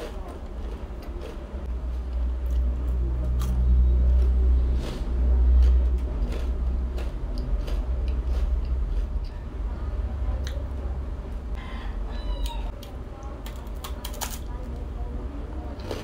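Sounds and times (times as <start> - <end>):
crunchy chewing: 0.0 - 9.5, 15.7 - 16.0
deep rumble: 0.0 - 13.8.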